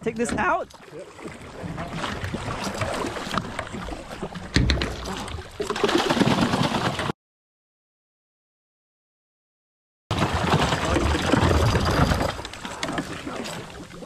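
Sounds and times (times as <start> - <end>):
water splashing against boat: 0.0 - 7.1, 10.1 - 14.0.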